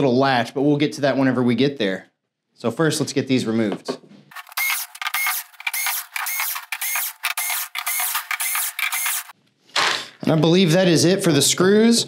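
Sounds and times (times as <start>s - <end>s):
electric screwdriver whirring: 4.3s - 9.4s.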